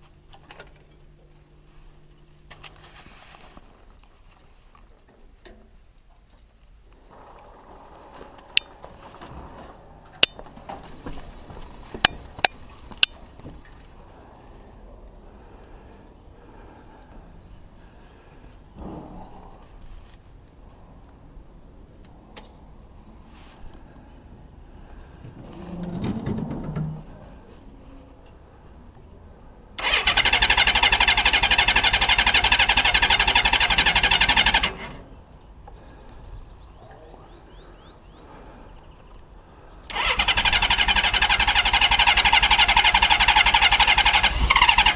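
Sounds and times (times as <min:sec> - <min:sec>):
low steady background noise: 0:00.0 - 0:44.9
sharp metallic clicks: 0:12.0 - 0:13.3
engine cranking on starter: 0:29.8 - 0:35.0, 0:39.9 - 0:44.9.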